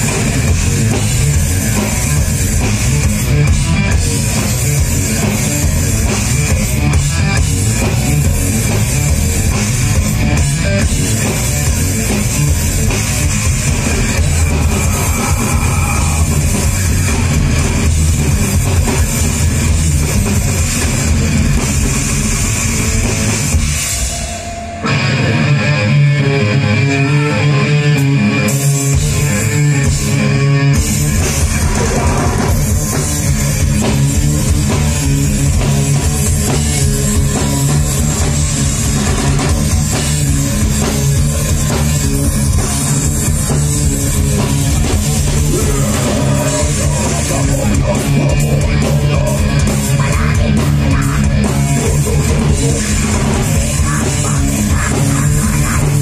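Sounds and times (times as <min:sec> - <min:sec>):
heavy rock band playing: 0:00.0 - 0:56.0.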